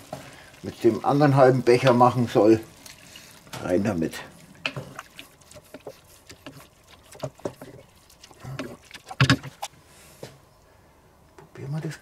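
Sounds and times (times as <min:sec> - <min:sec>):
wooden spatula stirring stew: 0:04.6 - 0:09.7.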